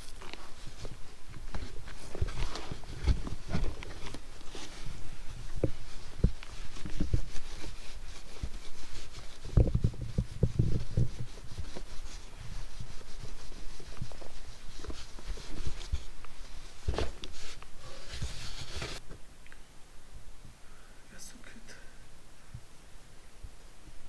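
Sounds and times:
towel rubbing fur: 0.0s - 19.0s.

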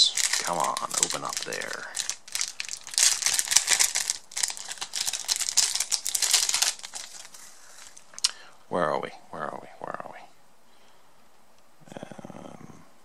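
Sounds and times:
plastic wrapper crinkling: 0.0s - 8.3s.

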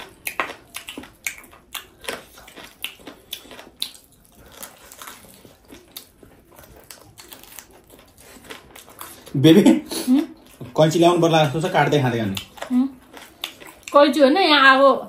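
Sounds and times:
chewing tough meat: 0.0s - 14.3s.

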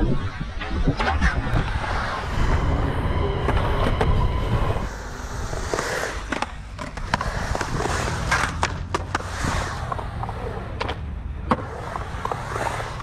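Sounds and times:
skateboard wheels rolling on concrete: 0.0s - 13.0s
skateboard clacking on concrete: 5.7s - 12.5s.

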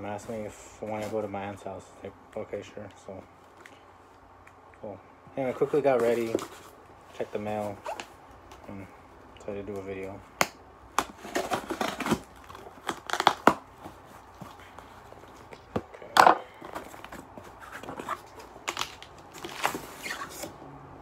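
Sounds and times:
packing tape tearing: 10.9s - 13.9s, 17.0s - 20.6s
cardboard box tearing and rustling: 11.0s - 14.6s.

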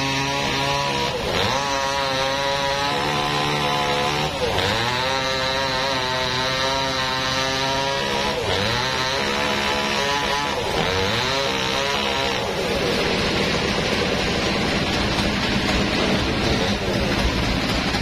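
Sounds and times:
chainsaw cutting log: 0.0s - 18.0s
steady rushing noise: 12.4s - 18.0s.

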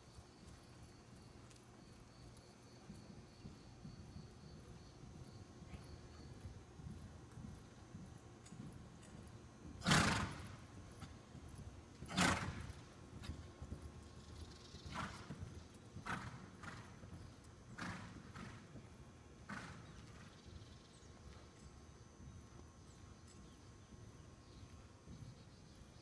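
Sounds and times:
muffled hoofbeats: 1.2s - 26.0s
horse snorting: 9.8s - 10.6s, 12.1s - 12.7s.

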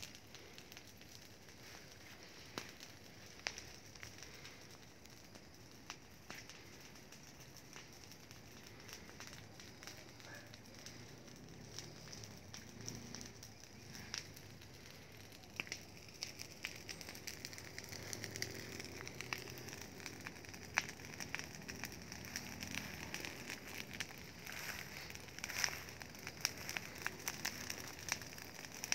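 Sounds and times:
fire crackling and popping: 0.0s - 28.9s
fire hiss: 0.0s - 28.9s.

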